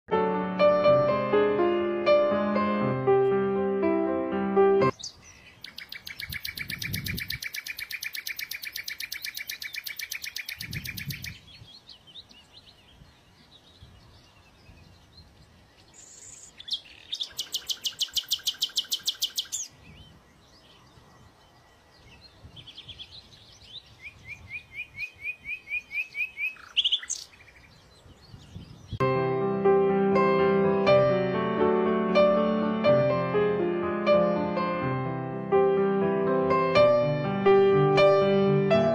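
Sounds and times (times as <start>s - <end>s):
nightingale singing: 4.9s - 29.0s.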